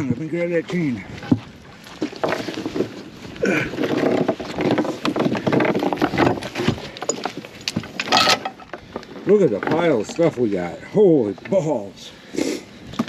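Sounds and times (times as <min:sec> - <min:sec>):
metal chain clanking and rattling: 0:03.8 - 0:08.8.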